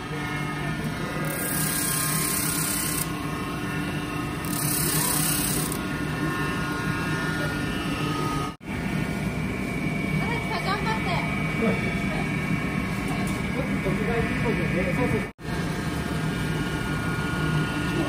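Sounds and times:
belt sander motor hum: 0:00.0 - 0:08.6.

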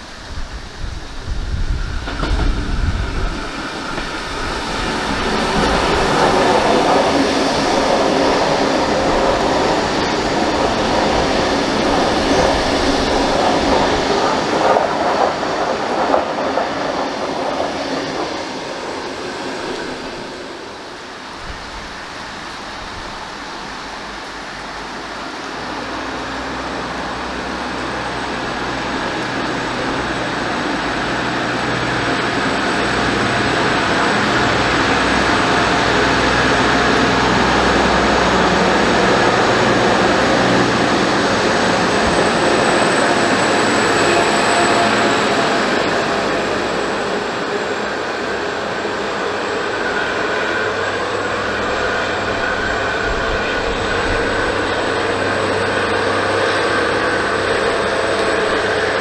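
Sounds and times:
low hum of approaching train: 0:00.0 - 0:59.0
train wheels clattering over rails: 0:00.0 - 0:59.0.

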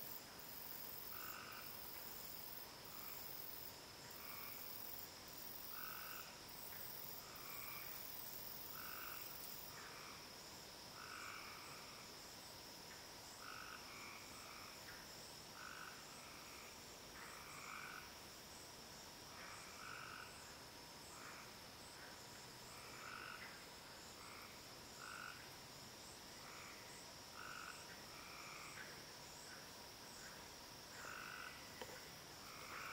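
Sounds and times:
frogs calling: 0:05.6 - 0:06.4, 0:08.7 - 0:10.2, 0:11.0 - 0:12.0, 0:13.4 - 0:14.8, 0:15.6 - 0:18.1, 0:19.3 - 0:20.5, 0:22.7 - 0:25.5, 0:26.4 - 0:32.9.

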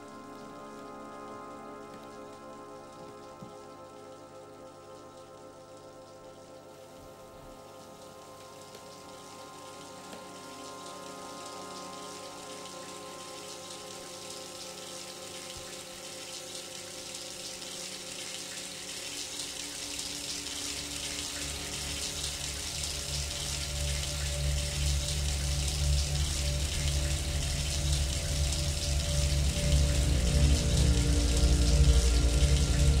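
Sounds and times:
shower water running: 0:07.6 - 0:33.0
low drone: 0:21.3 - 0:33.0.

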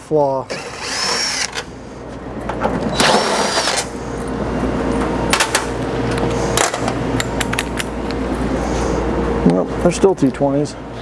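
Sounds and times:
cordless drill spinning: 0:00.5 - 0:01.7.

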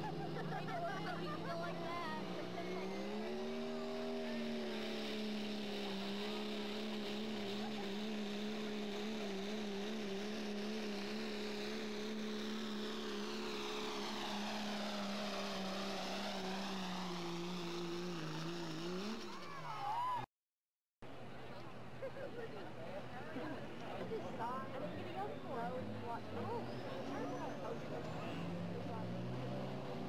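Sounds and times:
diesel truck engine droning: 0:00.0 - 0:19.6.

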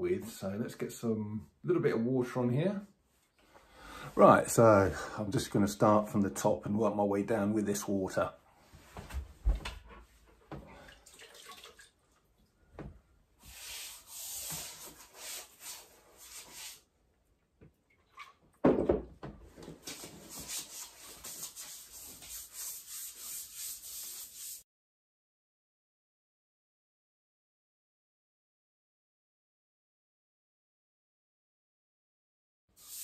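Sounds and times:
wet paintbrush brushing wallpaper: 0:13.4 - 0:16.8, 0:19.8 - 0:24.6, 0:32.8 - 0:33.0
knock: 0:18.6 - 0:19.4.

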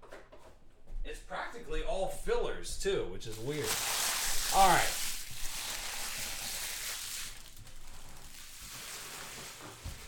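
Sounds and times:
foil wrappers and cards rustling: 0:03.3 - 0:10.0.

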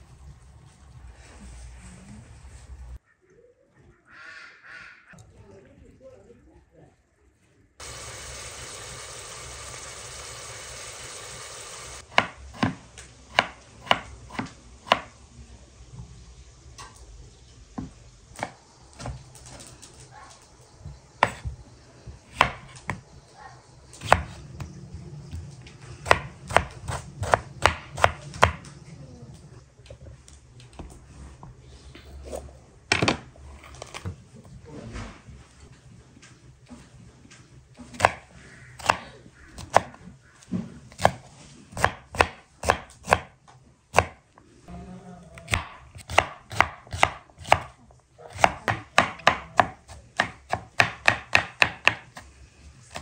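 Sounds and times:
oil sizzling in a frying pan: 0:07.8 - 0:12.0
knife chopping on wooden board: 0:12.1 - 0:15.1, 0:21.2 - 0:21.6, 0:22.3 - 0:23.0, 0:24.0 - 0:24.4, 0:26.0 - 0:28.6, 0:37.9 - 0:38.2, 0:40.9 - 0:43.3, 0:45.5 - 0:52.3.

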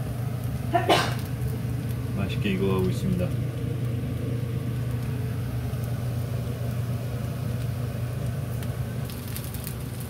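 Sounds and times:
pancake sizzling in a pan: 0:00.0 - 0:10.0
steady low hum: 0:00.0 - 0:10.0.

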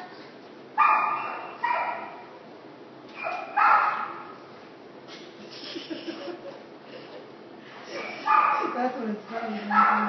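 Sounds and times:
dog barking: 0:00.8 - 0:02.4, 0:03.2 - 0:04.4, 0:08.2 - 0:08.8, 0:09.6 - 0:10.0.

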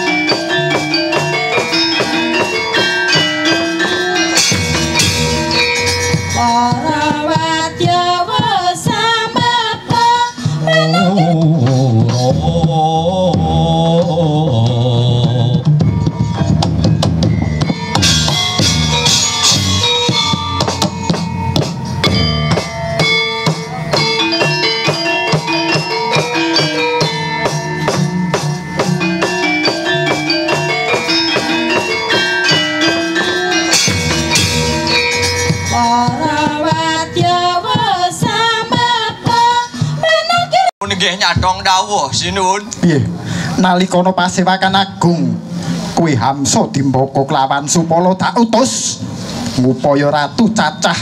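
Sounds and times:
wavering melodic line: 0:00.0 - 0:08.1, 0:15.4 - 0:37.6
hand drum strokes: 0:00.0 - 0:39.6
metallophones and gongs: 0:00.0 - 0:42.7.

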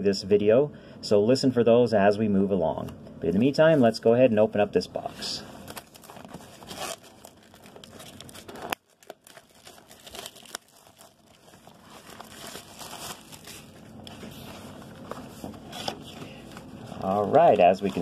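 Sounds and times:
plastic wrap tearing and crinkling: 0:05.5 - 0:18.0.

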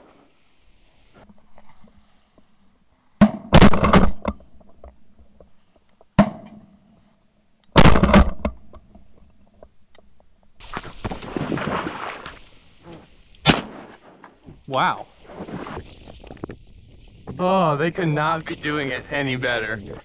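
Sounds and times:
shotgun blasts: 0:03.2 - 0:04.2, 0:13.4 - 0:14.4.

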